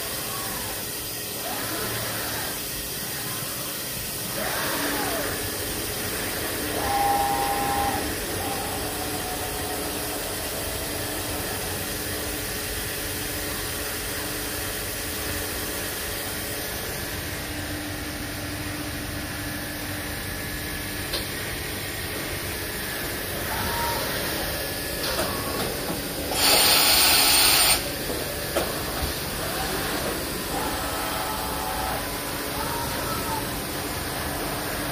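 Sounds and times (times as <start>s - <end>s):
machine mechanical hum: 0.0s - 34.9s
machine tone: 4.3s - 12.0s, 23.4s - 27.9s, 29.4s - 33.4s
loud hiss: 26.3s - 27.8s.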